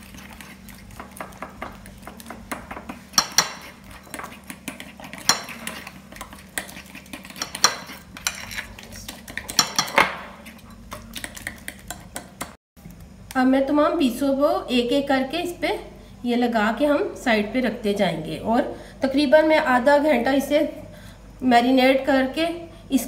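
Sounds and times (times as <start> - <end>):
spoon stirring batter in glass bowl: 0.0 - 12.6.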